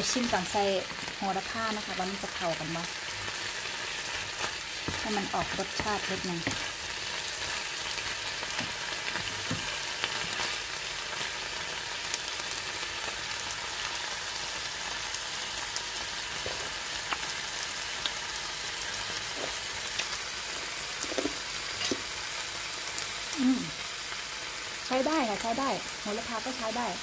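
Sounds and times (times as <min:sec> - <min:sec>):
food sizzling in a pan: 0:00.0 - 0:27.0
wooden spatula scraping and tapping: 0:04.4 - 0:06.8, 0:08.4 - 0:10.5.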